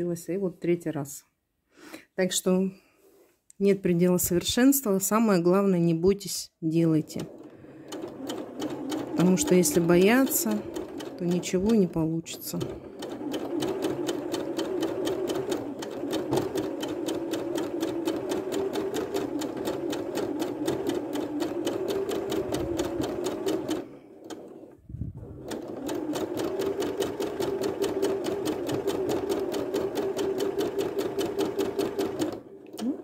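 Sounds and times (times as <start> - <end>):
sewing machine needle clatter: 7.0 - 24.7, 25.4 - 33.0
sewing machine motor hum: 7.0 - 33.0.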